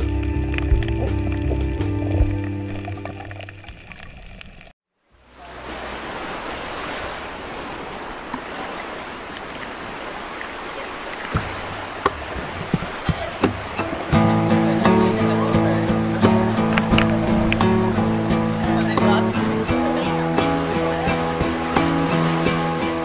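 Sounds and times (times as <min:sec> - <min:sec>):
background music: 0:00.0 - 0:03.4, 0:13.7 - 0:23.0
shallow sea water washing: 0:00.0 - 0:23.0
small water splashes: 0:00.0 - 0:23.0
clicks: 0:16.6 - 0:17.7.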